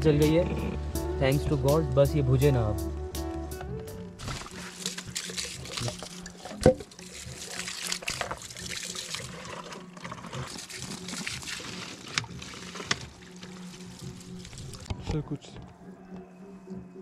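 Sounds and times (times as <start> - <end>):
campfire crackling and popping: 4.2 - 9.5, 10.3 - 15.8.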